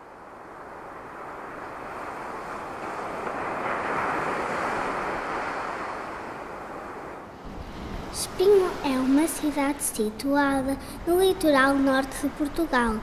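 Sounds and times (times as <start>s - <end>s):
surf washing on a beach: 0.0s - 13.0s.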